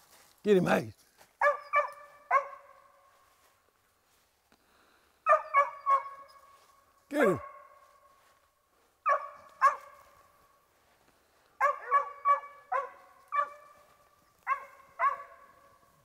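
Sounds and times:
dog barking: 1.4s - 3.0s, 5.2s - 6.5s, 7.3s - 7.9s, 9.0s - 10.2s, 11.6s - 15.8s.

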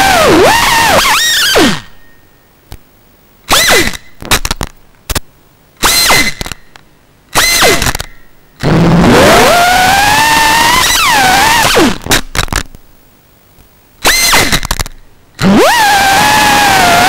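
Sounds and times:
short motor spin-up bursts: 0.0s - 1.9s, 3.5s - 4.1s, 5.8s - 6.5s, 7.3s - 12.1s, 14.0s - 14.8s, 15.4s - 17.0s
drone motors whining down: 0.0s - 2.0s, 7.3s - 12.1s, 14.0s - 14.8s, 15.4s - 17.0s.

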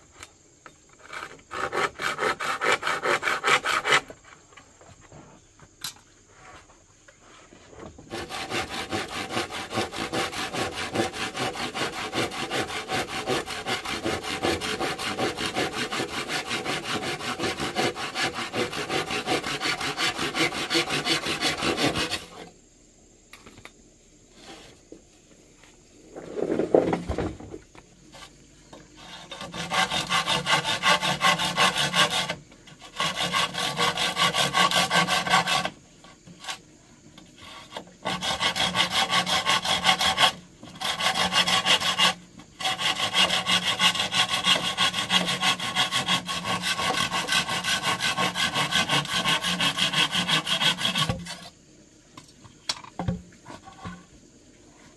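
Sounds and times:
hand saw cutting wood: 1.0s - 4.2s, 8.0s - 22.5s, 28.9s - 36.6s, 37.4s - 51.6s.

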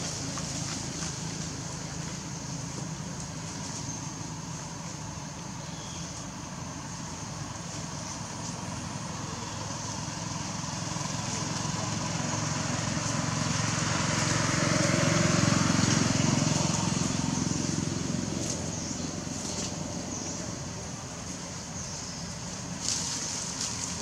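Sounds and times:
vehicle passing by: 8.4s - 24.0s.

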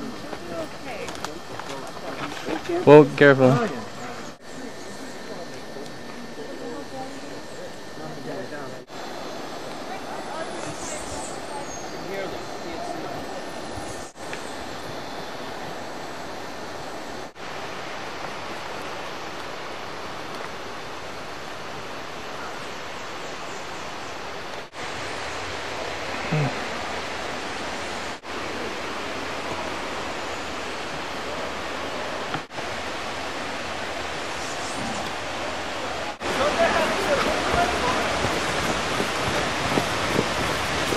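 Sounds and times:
flowing river water: 11.3s - 40.9s
low voice-like sound: 26.1s - 26.7s, 34.4s - 35.3s.

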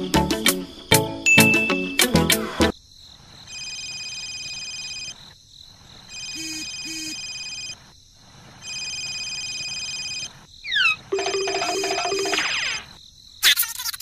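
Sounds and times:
pulsing insect trill: 3.0s - 14.0s.

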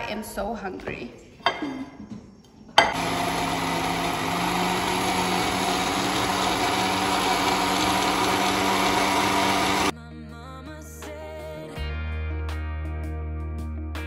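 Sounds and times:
blender motor running: 2.9s - 9.9s.

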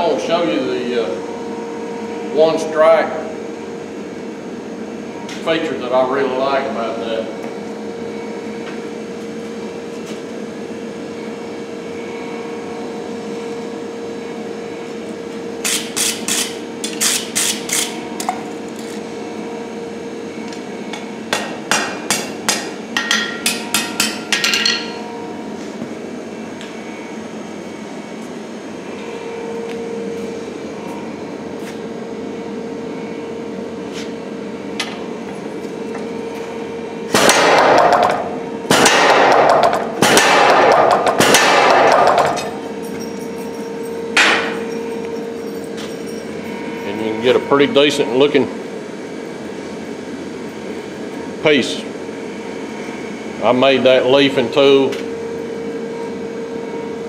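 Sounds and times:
steady hum: 0.0s - 57.0s
power hammer striking rapidly: 37.1s - 42.6s.

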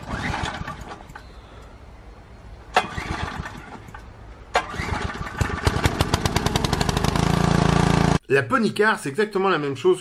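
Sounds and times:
small engine sputtering and running: 4.6s - 8.2s.

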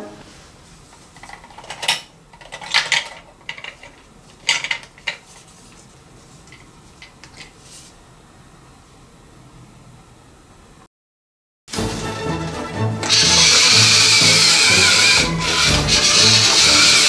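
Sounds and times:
toy candy machine clicking: 13.0s - 17.0s.

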